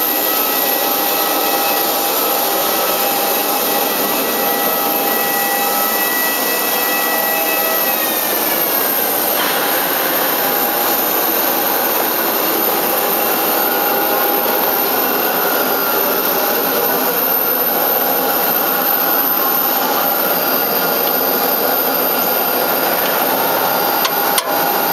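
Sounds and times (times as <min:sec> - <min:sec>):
aircraft turbine rush and whine: 0:00.0 - 0:24.9.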